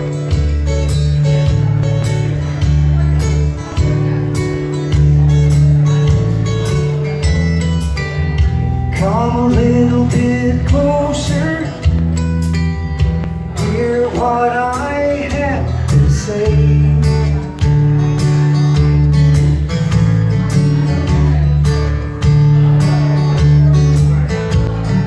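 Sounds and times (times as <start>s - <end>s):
acoustic guitar strumming: 0.0s - 25.0s
man singing: 8.5s - 18.8s.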